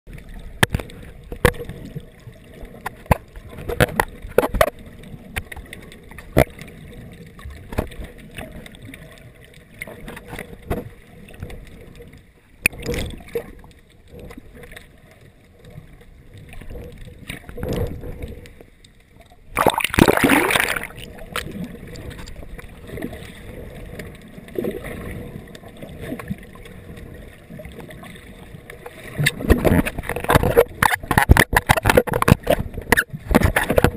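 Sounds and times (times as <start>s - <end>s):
water sloshing underwater: 0.1s - 33.9s
loud rush of water: 19.6s - 21.1s
sharp clicks and knocks: 29.2s - 33.9s.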